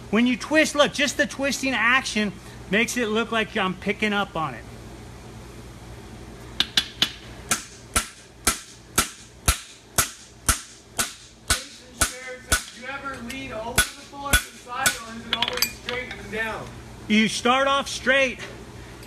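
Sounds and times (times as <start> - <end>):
hammer striking steel on anvil: 6.6 - 12.8, 13.8 - 15.9.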